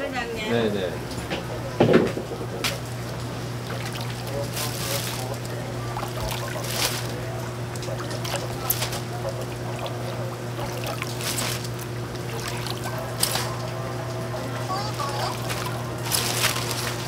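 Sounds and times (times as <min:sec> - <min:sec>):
steady low hum: 0:00.0 - 0:17.0
water splashing and trickling: 0:02.7 - 0:13.7, 0:14.7 - 0:17.0.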